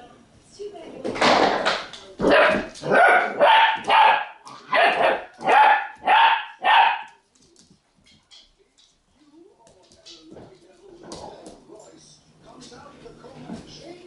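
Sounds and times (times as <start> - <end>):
dog barking: 2.2 - 7.2.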